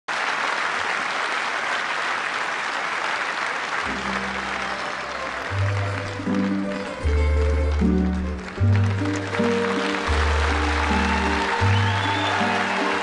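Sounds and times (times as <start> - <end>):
stadium audience applauding: 0.1 - 13.0
string band playing: 3.9 - 13.0.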